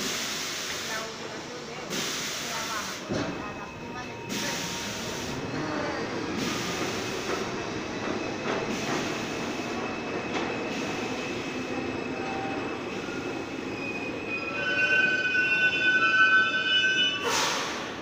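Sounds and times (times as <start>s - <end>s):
train wheels rumbling on rail: 0.0s - 18.0s
faint thin wheel squeal: 13.8s - 17.6s.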